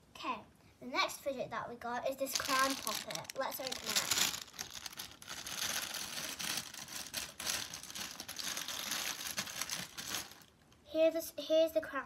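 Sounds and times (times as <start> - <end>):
plastic packaging crinkling: 2.2 - 10.8.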